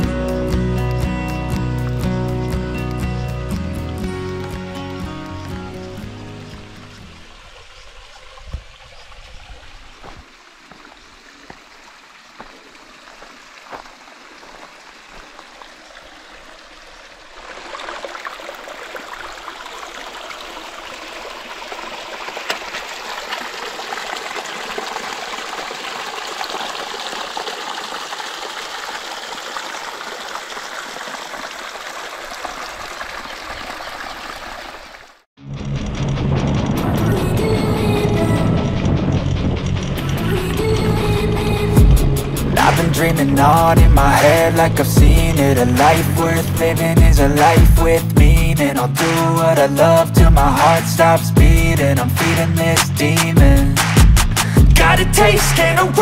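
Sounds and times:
waterfall rushing over rock: 0:06.2 - 0:35.1.

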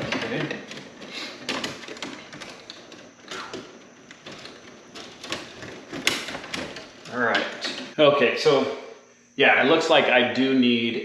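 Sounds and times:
electrical wires clicking and scraping: 0:00.0 - 0:08.0.

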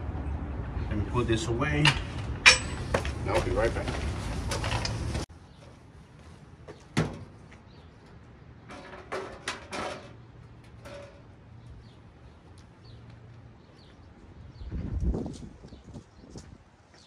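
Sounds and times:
knocks and rattles of car parts: 0:06.7 - 0:07.8, 0:08.6 - 0:11.3.

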